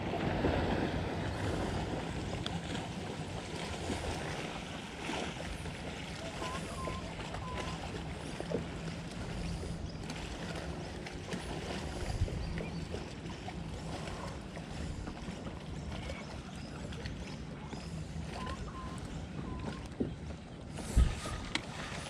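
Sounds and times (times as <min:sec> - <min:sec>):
low outdoor background on water: 0:00.0 - 0:22.0.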